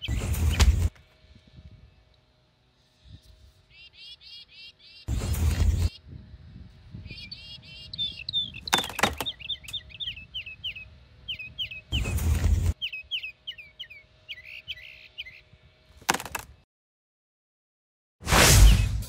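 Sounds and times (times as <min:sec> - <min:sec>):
small birds chirping: 0:00.0 - 0:00.9, 0:03.0 - 0:15.7.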